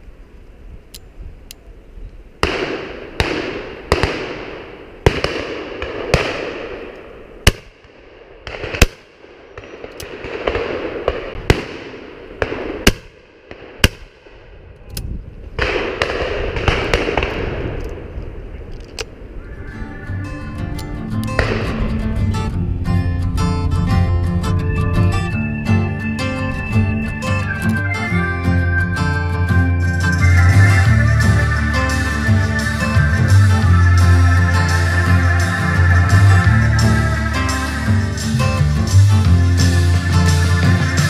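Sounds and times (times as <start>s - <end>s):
shotgun shots echoing: 2.4s - 14.5s, 15.6s - 18.2s, 21.4s - 22.0s.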